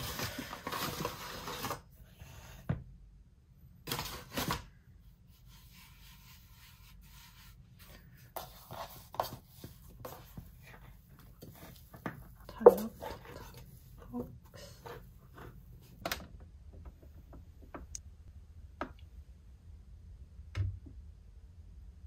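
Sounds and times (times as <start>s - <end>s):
rubbing and rustling: 5.2s - 16.0s.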